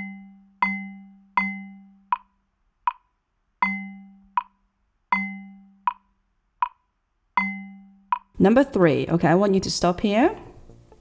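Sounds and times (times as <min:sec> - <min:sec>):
metronome ticking: 0:00.0 - 0:08.4.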